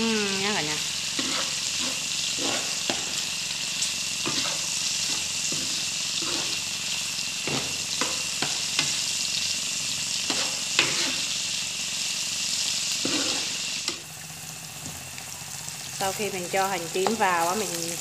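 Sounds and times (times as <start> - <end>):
food sizzling in oil: 0.0 - 18.0
utensil scraping pan: 1.2 - 3.2, 4.2 - 6.6, 10.3 - 11.3, 13.0 - 13.6.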